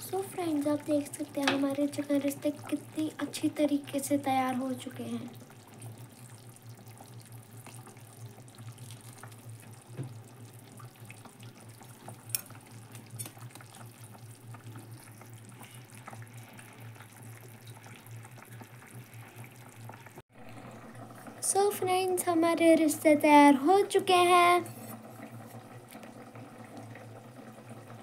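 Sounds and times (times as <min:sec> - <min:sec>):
ladle stirring gravy: 0:05.6 - 0:18.7.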